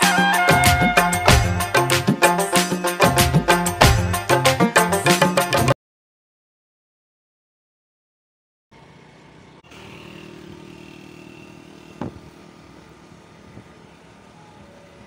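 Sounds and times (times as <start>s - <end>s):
motorcycle engine running: 8.7s - 15.0s
short thump: 12.0s - 12.3s.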